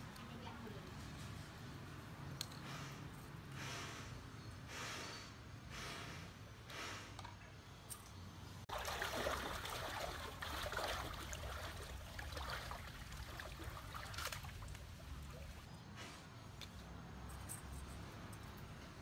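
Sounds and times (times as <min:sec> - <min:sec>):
water splashing from wading: 0:08.7 - 0:15.7.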